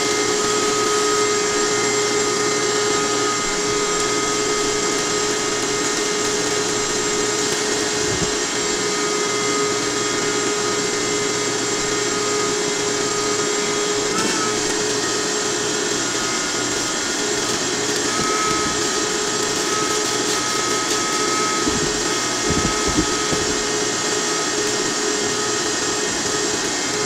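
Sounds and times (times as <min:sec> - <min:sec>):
shop vac running: 0:00.0 - 0:27.0.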